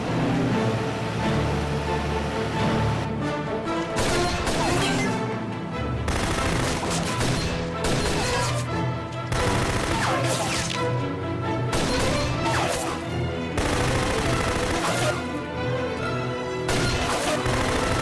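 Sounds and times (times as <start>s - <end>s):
dramatic film score: 0.0s - 18.0s
automatic gunfire: 6.1s - 8.4s, 9.3s - 10.4s, 13.6s - 15.2s, 16.7s - 18.0s.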